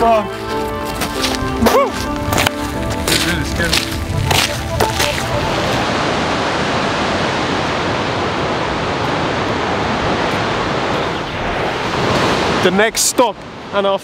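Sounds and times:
waterfall rushing: 0:03.8 - 0:14.0.

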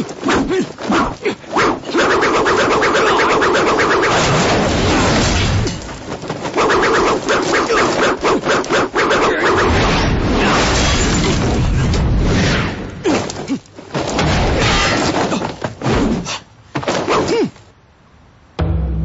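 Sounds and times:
crashing smashing impacts: 0:09.6 - 0:17.3.

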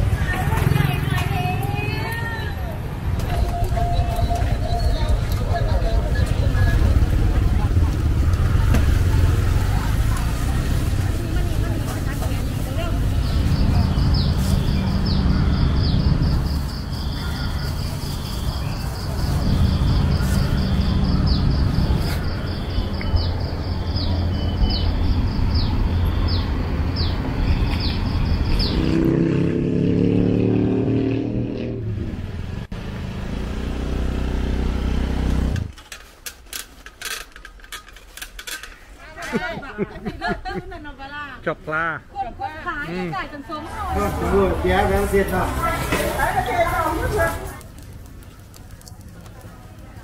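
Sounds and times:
motor vehicle engine accelerating: 0:02.9 - 0:17.2, 0:17.8 - 0:35.8, 0:43.7 - 0:50.0.

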